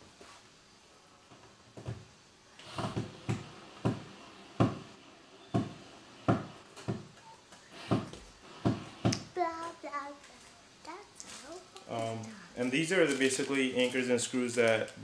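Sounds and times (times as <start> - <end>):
sharp knocks against wall: 2.7 - 4.9, 5.5 - 7.1.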